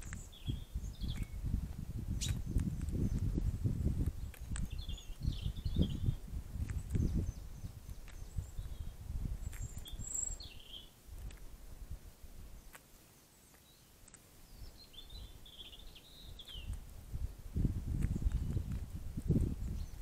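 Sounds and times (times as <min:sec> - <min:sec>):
high bird chirps: 0:00.0 - 0:01.4, 0:02.2 - 0:03.2, 0:04.6 - 0:06.2, 0:06.8 - 0:11.0, 0:14.5 - 0:16.8.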